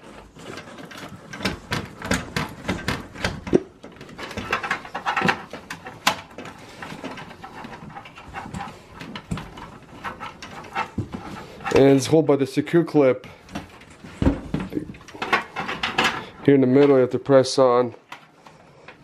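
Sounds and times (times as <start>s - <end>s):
cable connectors clicking and tapping: 0.0s - 12.0s, 13.3s - 17.0s.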